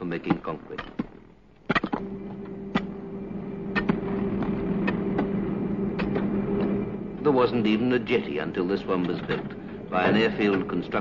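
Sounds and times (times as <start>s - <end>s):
clanks and knocks: 0.2s - 3.0s, 3.7s - 5.4s, 8.9s - 11.0s
construction machinery engine humming: 2.0s - 11.0s.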